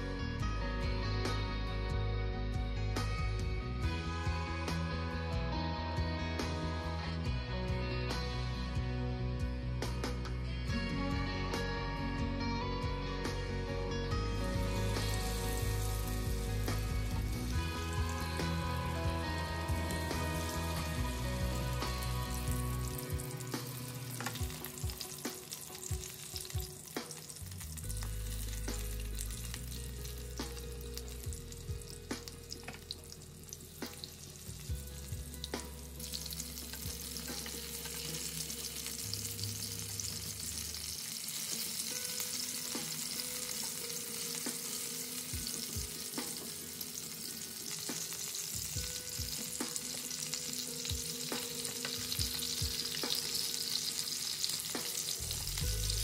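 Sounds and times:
chicken sizzling in oil: 0:14.1 - 0:56.0.

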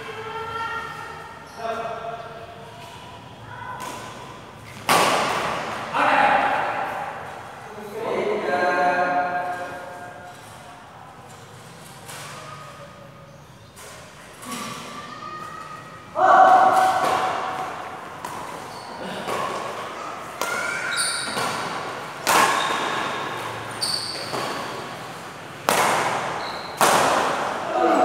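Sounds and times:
racket hitting shuttlecock: 0:03.8 - 0:05.8, 0:16.4 - 0:27.7
shoes squeaking on court: 0:04.3 - 0:04.9, 0:18.2 - 0:25.4, 0:26.2 - 0:26.9.

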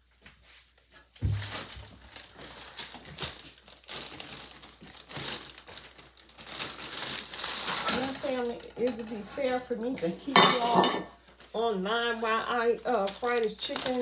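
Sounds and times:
thump: 0:01.2 - 0:01.6
plastic bag crinkling: 0:01.2 - 0:14.0.

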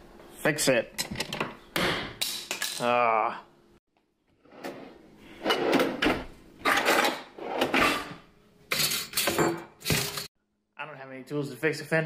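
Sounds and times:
kitchen drawers sliding: 0:04.4 - 0:10.3.

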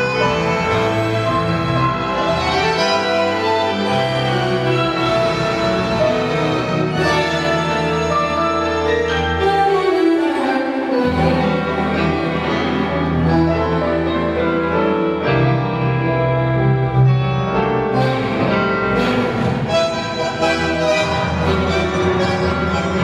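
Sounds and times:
tango music: 0:00.0 - 0:23.0
violins playing melody: 0:00.0 - 0:23.0
bass line: 0:15.8 - 0:23.0.

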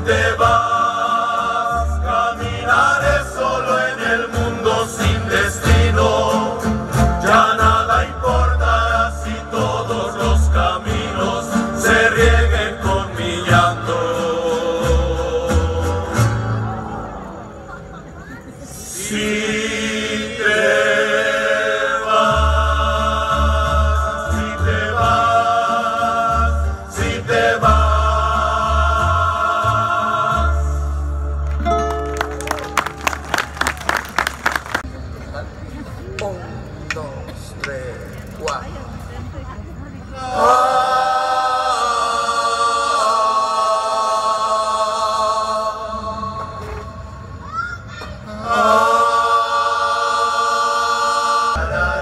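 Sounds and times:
male voices singing chords: 0:00.0 - 0:17.3, 0:18.9 - 0:31.4, 0:40.1 - 0:47.3, 0:48.3 - 0:52.0
double bass notes: 0:00.0 - 0:17.5, 0:22.1 - 0:32.4.

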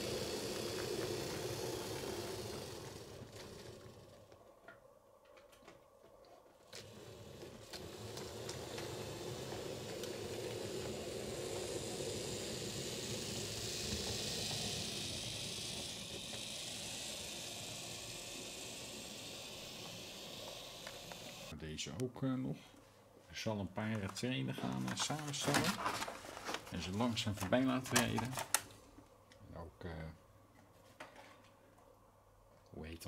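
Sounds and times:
model train whirring on rails: 0:00.0 - 0:04.4, 0:06.7 - 0:21.5.

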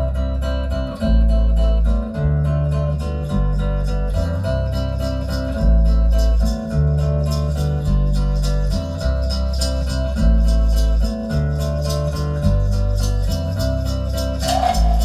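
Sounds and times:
plucked strings music with bass: 0:00.0 - 0:15.0.

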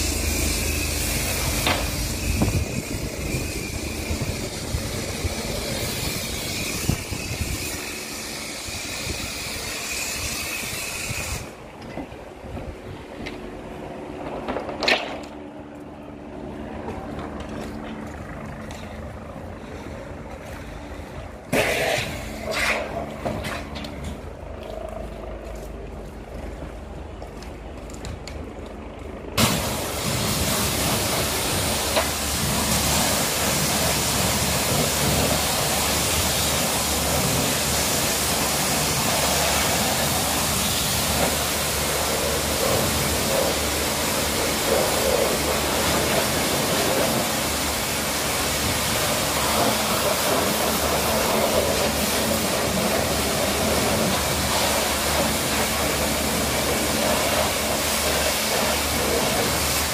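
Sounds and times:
pressure washer spraying water: 0:00.0 - 0:11.6, 0:29.4 - 0:59.9
low hum: 0:00.0 - 0:59.9.

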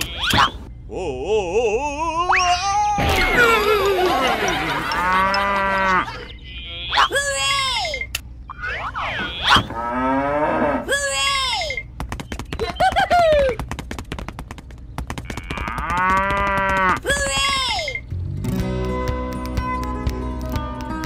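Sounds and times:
cow mooing: 0:04.9 - 0:06.2, 0:09.2 - 0:10.9
fast run of clicks: 0:11.9 - 0:17.7.

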